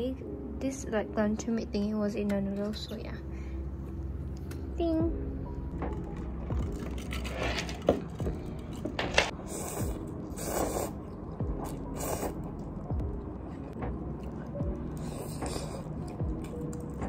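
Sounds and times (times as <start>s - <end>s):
noodles being slurped: 9.4s - 12.8s.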